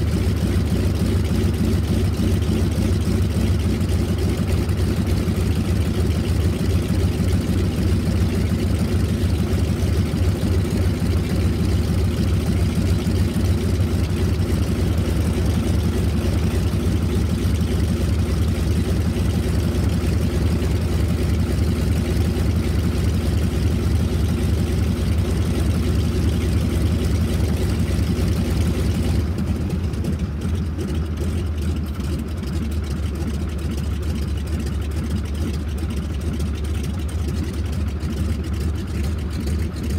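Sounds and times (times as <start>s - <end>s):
radial engine running: 0.0s - 39.9s.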